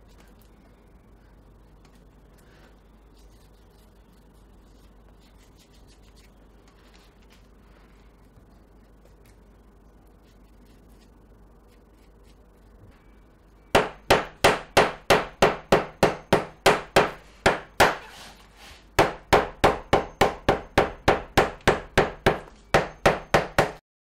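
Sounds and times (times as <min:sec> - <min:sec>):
hammer beating leather: 0:13.8 - 0:18.1, 0:19.0 - 0:23.8.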